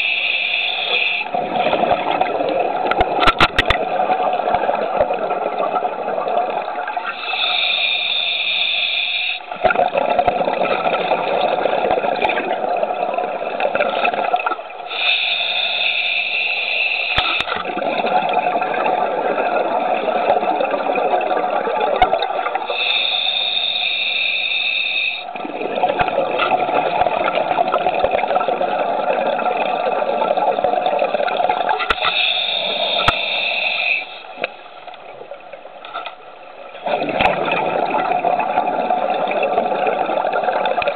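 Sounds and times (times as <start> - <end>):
diver inhaling through regulator: 0.0 - 1.3, 7.1 - 9.5, 14.9 - 17.5, 22.7 - 25.3, 31.9 - 34.4
exhaled bubbles gurgling: 0.0 - 40.9.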